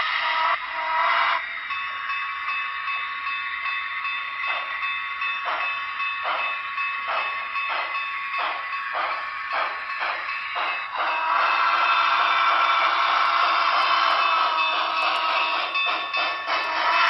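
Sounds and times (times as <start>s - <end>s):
model train steam chuffs: 7.0s - 17.0s.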